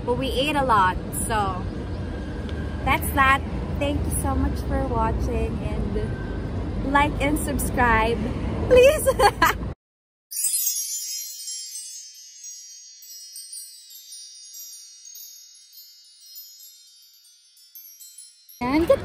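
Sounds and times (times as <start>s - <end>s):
wind chimes tinkling: 10.3s - 19.0s.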